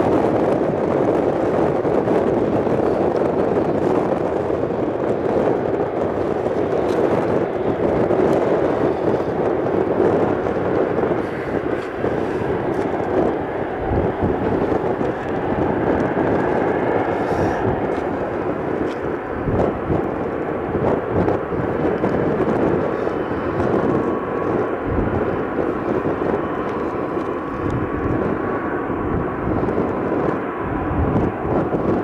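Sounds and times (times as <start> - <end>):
jet engines at takeoff thrust: 0.0 - 32.0.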